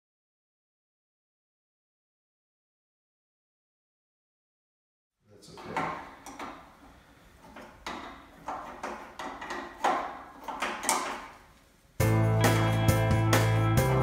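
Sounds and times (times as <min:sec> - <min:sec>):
wrench scraping on metal bolt: 0:05.6 - 0:11.4
music: 0:12.0 - 0:14.0.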